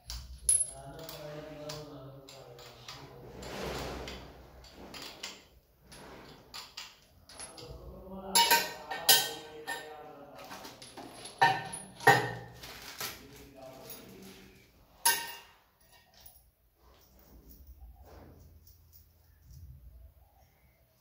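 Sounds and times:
metal clinks and knocks: 0.0 - 12.7, 15.0 - 19.9.

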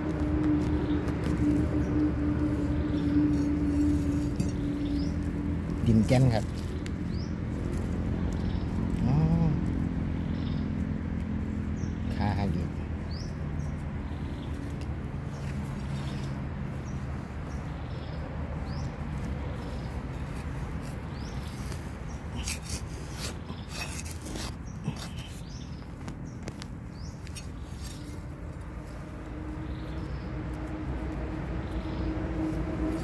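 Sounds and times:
steady low rumble: 0.0 - 33.0
bird chirping: 0.7 - 9.5, 11.7 - 30.4
knife scraping into soil: 2.9 - 5.2, 19.6 - 25.8, 27.0 - 28.4.

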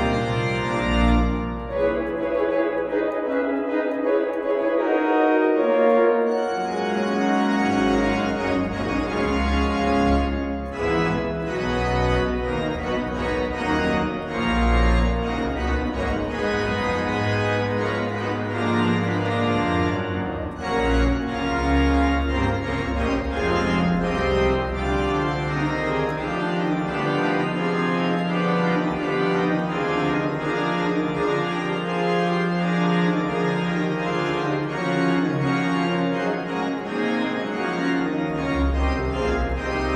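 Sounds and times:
deep organ pedal bass: 0.0 - 3.4, 4.0 - 39.9
pipe organ playing hymn chords: 0.0 - 39.9.

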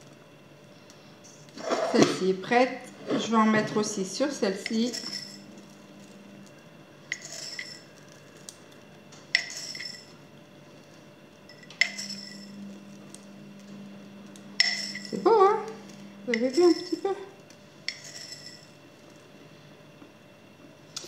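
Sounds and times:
glass jar clinking: 9.4 - 10.1, 11.5 - 12.6, 14.6 - 15.2.

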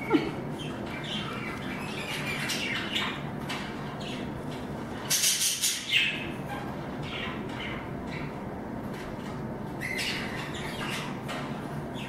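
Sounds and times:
budgerigars chirping: 0.6 - 4.4, 5.1 - 6.4, 7.0 - 8.4, 9.8 - 11.2.

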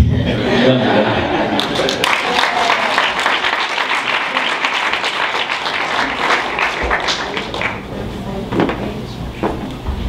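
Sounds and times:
audience applauding: 1.2 - 8.0.

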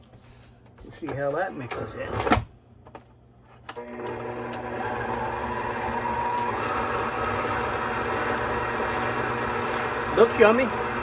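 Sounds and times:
electric mixer motor humming: 3.8 - 11.0.

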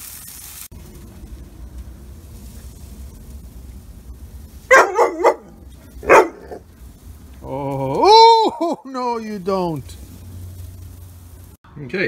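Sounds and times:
dog barking: 4.7 - 6.6.

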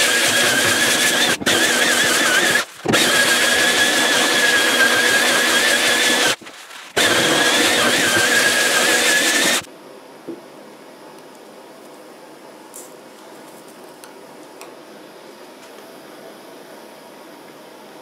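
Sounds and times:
belt sander grinding wood: 0.0 - 9.7
low room noise: 9.7 - 18.0.

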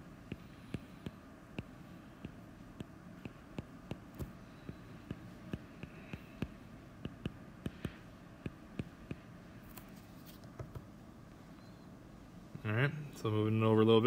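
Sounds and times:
stylus tapping on drawing tablet: 0.2 - 9.3, 10.5 - 10.9.

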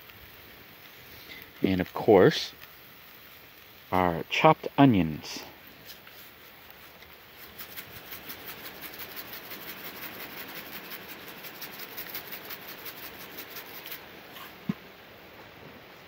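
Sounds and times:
shaker rattling: 5.4 - 14.7.

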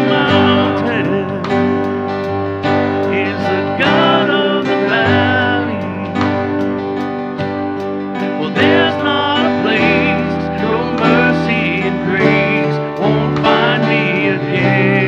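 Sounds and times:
men singing worship song: 0.0 - 1.8, 3.0 - 6.6, 8.3 - 15.0
keyboard: 0.0 - 15.0
strummed acoustic guitar: 0.0 - 15.0.

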